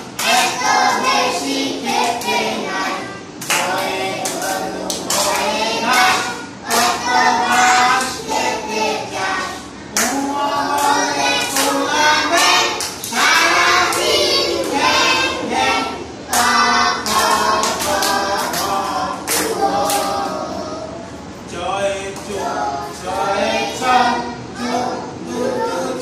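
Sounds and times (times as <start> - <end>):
children singing in chorus: 0.0 - 21.1, 22.2 - 26.0
hand claps: 3.4 - 6.1, 9.9 - 14.8, 16.3 - 20.1.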